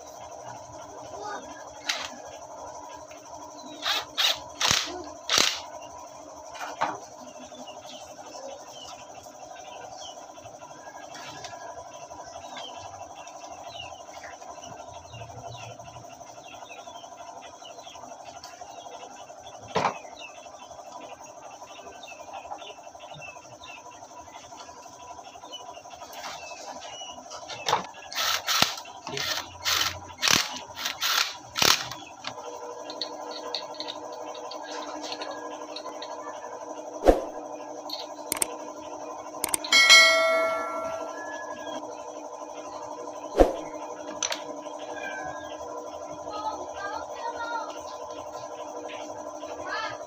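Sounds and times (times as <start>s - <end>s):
metal parts clicking and knocking: 28.1s - 36.2s, 37.9s - 38.5s, 39.4s - 39.7s.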